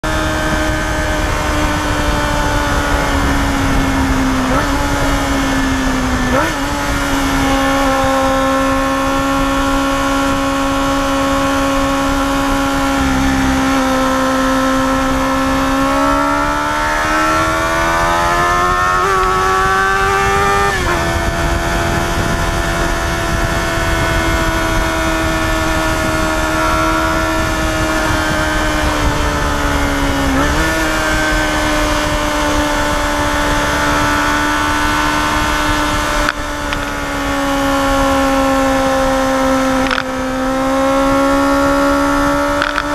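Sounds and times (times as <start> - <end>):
motorcycle engine running: 0.0 - 42.9
wind rushing: 0.0 - 42.9.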